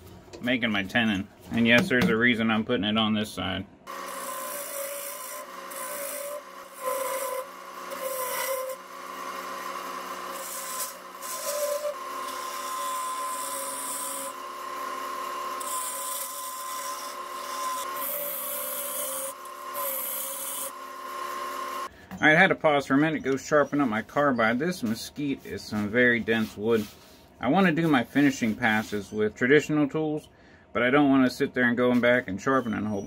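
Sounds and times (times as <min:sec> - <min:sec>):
lathe motor whine: 0:03.9 - 0:21.9
tool scraping wood on lathe: 0:03.9 - 0:21.9.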